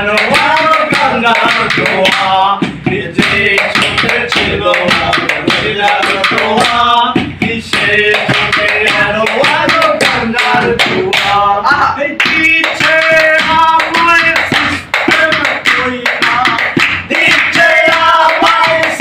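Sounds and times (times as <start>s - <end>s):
man singing: 0.0s - 19.0s.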